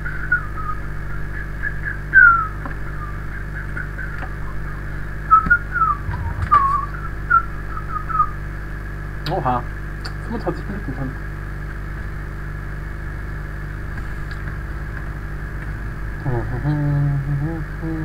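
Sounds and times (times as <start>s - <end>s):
whistled chirps and glides: 0.0s - 8.4s
electrical hum: 0.0s - 18.0s.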